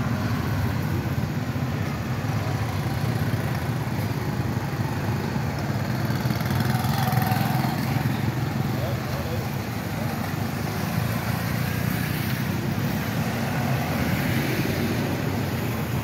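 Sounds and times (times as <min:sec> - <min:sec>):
traffic engines rumbling: 0:00.0 - 0:16.0.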